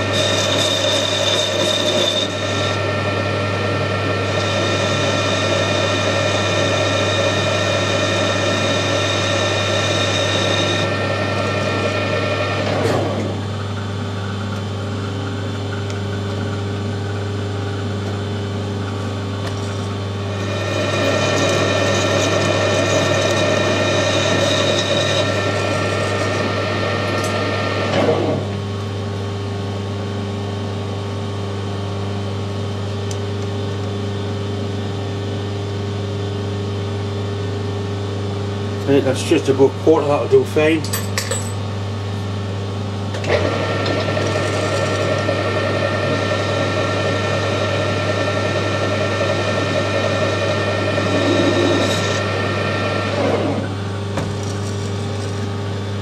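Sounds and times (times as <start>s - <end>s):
cutting tool turning steel shaft: 0.0s - 12.8s, 19.5s - 28.0s, 43.5s - 53.7s, 54.4s - 55.5s
metal lathe humming: 0.0s - 29.5s, 38.6s - 56.0s.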